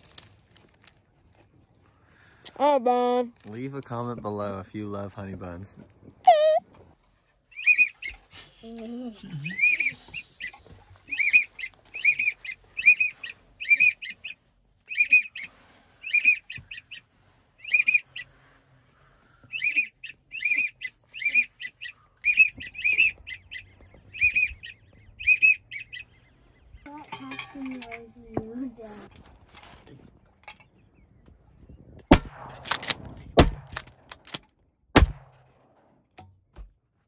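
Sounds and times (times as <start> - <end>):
waterfowl whistled calls: 7.5 - 8.2, 9.5 - 18.3, 19.5 - 26.2.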